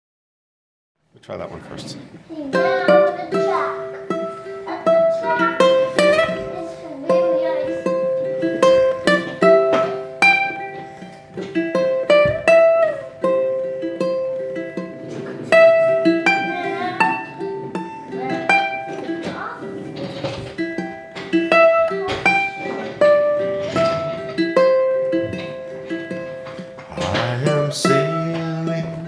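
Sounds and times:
ukulele playing: 2.3 - 29.0.

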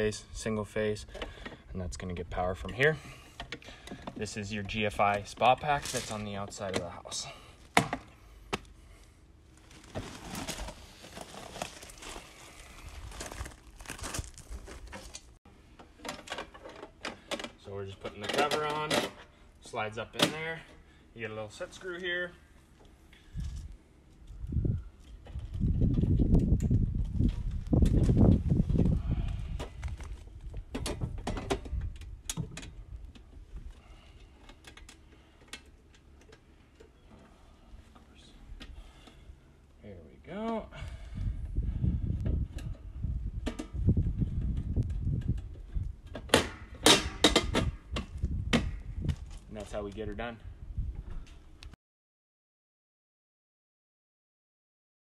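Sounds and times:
rustling and crunching: 3.7 - 6.8, 8.5 - 17.3.

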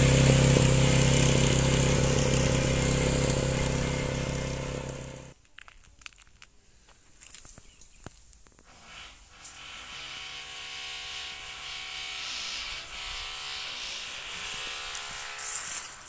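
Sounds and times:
motor humming: 0.0 - 5.3.

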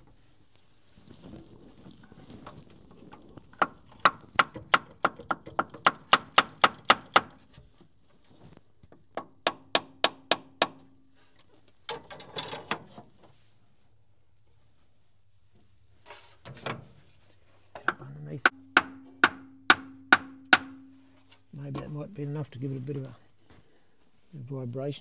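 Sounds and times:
hammer tapping metal: 17.9 - 20.9.

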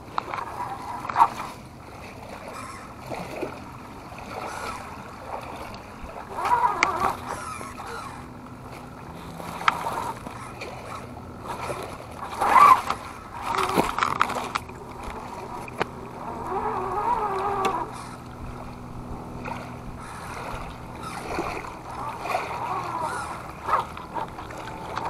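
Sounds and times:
toy car electric motor whining: 6.4 - 8.3, 16.2 - 18.2, 22.0 - 23.8
creek water splashing over rocks: 8.3 - 25.0.

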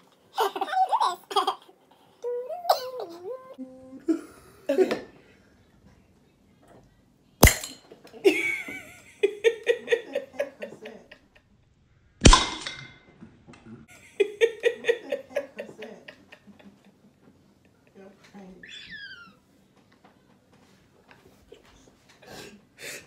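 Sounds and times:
people laughing: 8.1 - 11.5, 13.9 - 18.0.

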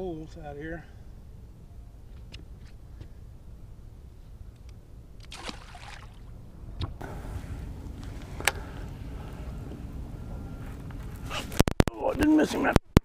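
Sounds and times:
steady low rumble: 0.0 - 11.7
water lapping against boat: 5.2 - 6.4.

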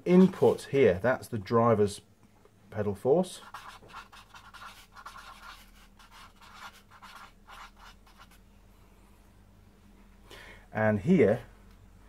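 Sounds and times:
marker pen scratching on cardboard: 3.4 - 8.4.

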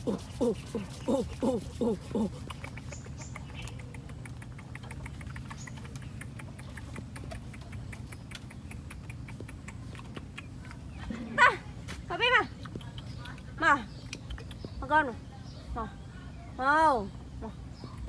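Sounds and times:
monkey hooting calls: 0.0 - 3.4
low steady hum: 0.0 - 18.0.

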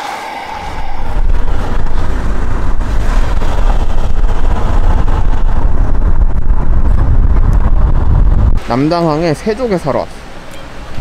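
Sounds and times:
road and wind noise: 0.0 - 11.0
car interior rumble: 0.4 - 8.7.

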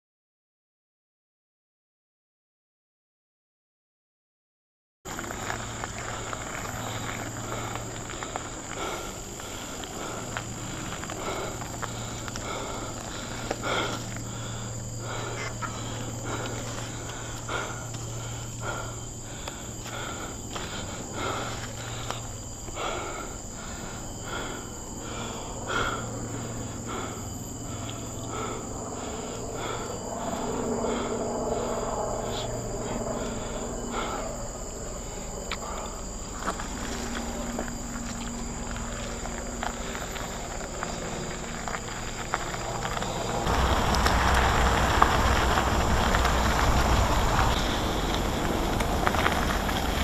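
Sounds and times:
tyres crunching on leaves: 5.1 - 18.4, 36.1 - 50.0
bike rattling: 5.1 - 22.9, 35.6 - 50.0
high-pitched insect drone: 5.1 - 50.0.

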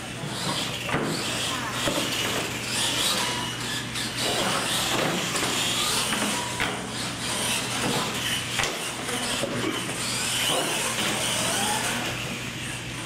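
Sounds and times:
toy truck motors whining: 0.1 - 13.0.

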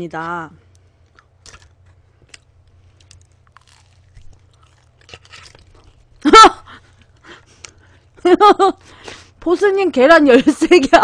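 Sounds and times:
chewing pizza: 0.8 - 8.0.

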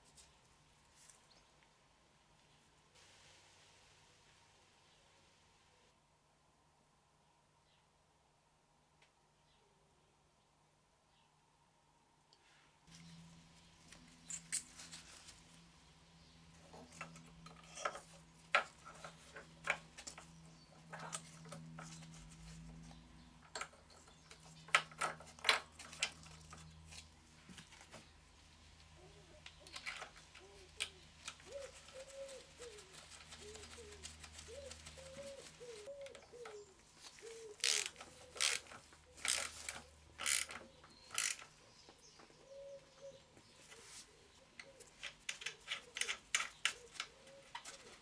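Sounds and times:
metal tools clicking and clinking: 14.1 - 14.9, 16.8 - 20.3, 23.4 - 26.6
pigeon cooing: 29.0 - 39.2, 42.4 - 48.0
ratchet tightening: 37.6 - 41.5.

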